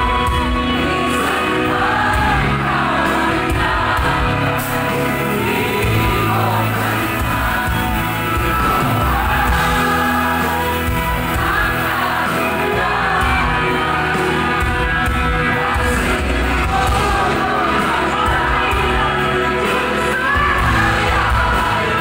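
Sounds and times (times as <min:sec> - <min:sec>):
live band music: 0:00.0 - 0:22.0
woman singing into microphone: 0:15.8 - 0:22.0.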